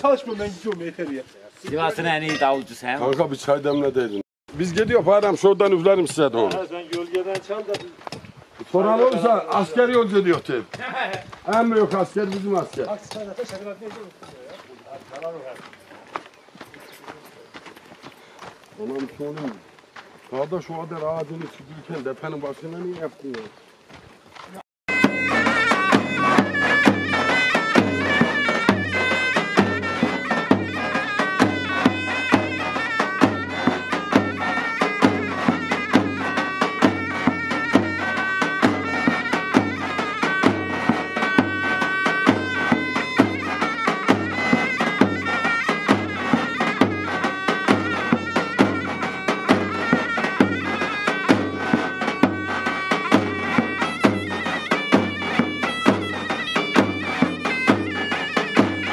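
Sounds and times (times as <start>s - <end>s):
zurna reedy melody: 0.0s - 17.1s, 24.9s - 58.9s
davul drum strokes: 24.9s - 58.9s.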